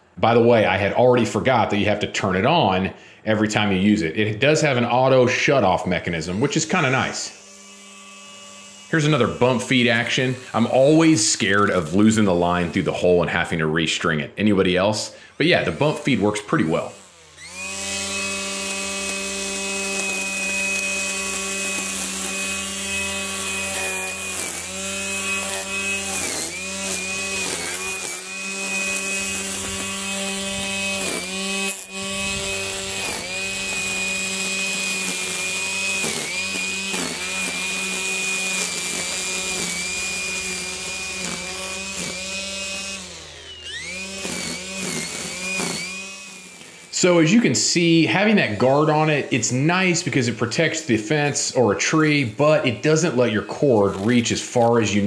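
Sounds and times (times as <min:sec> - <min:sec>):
string trimmer cutting grass: 0:05.8 - 0:13.6, 0:14.6 - 0:55.0.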